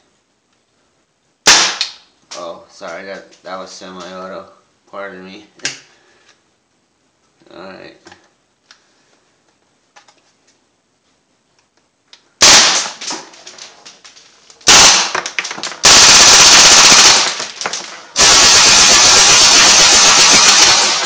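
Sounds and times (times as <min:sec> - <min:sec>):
bb rifle firing bursts: 0:12.4 - 0:13.6, 0:14.6 - 0:21.0.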